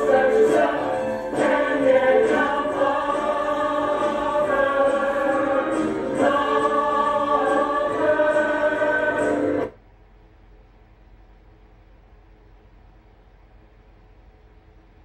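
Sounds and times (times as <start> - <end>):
cast singing in chorus: 0.0 - 9.7
musical accompaniment: 0.0 - 9.7.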